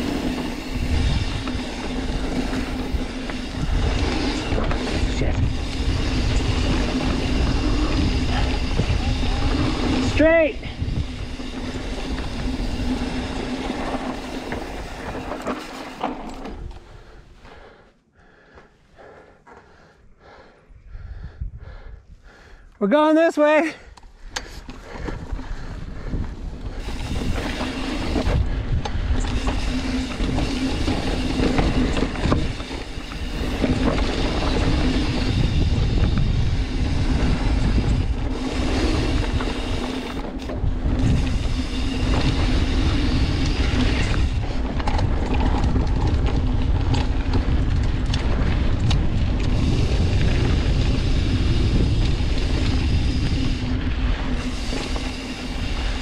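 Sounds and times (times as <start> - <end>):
wind buffeting microphone: 0.0 - 17.8, 19.7 - 22.7, 24.0 - 56.0
tyres rumbling over dirt: 10.8 - 16.7, 26.8 - 56.0.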